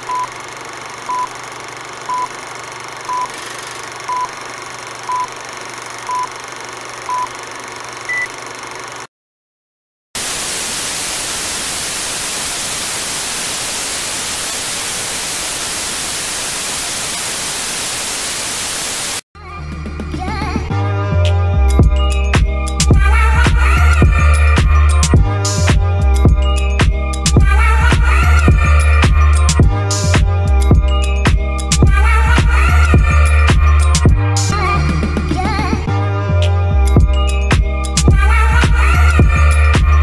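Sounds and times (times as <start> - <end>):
short beeps: 3.1 - 3.4
tv static hiss: 10.2 - 19.2
music: 19.4 - 40.0.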